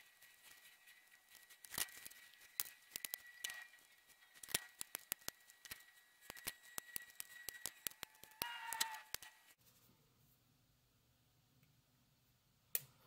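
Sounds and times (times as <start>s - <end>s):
faint steady high tone: 2.1s - 9.6s.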